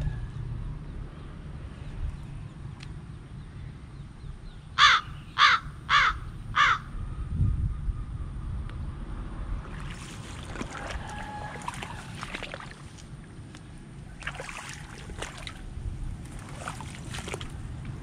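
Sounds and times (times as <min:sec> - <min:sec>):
wind buffeting microphone: 0:03.2 - 0:18.0
water sloshing and splashing: 0:09.4 - 0:18.0.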